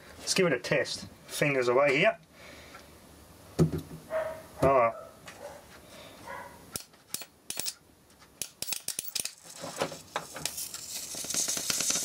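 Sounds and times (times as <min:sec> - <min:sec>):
crackling electric arc sparks: 0:08.5 - 0:12.0.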